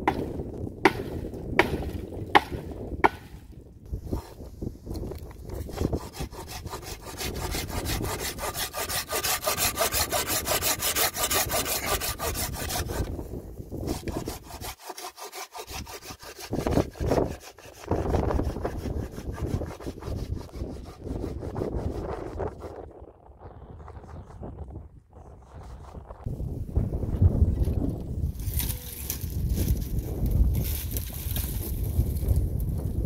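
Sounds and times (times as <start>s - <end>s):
hand saw cutting wood: 5.5s - 13.2s, 13.8s - 22.7s.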